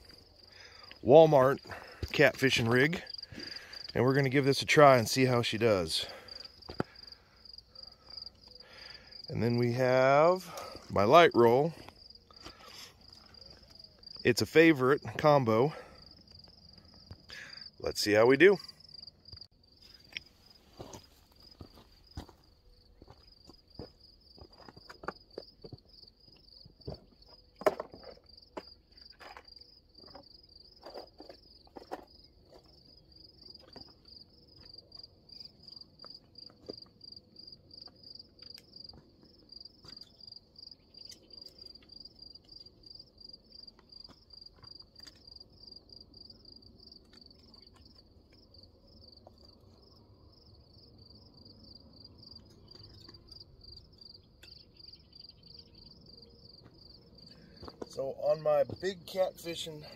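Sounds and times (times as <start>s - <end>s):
crickets chirping: 0.0s - 59.9s
footsteps on rocky gravel: 19.3s - 30.1s, 57.6s - 58.9s.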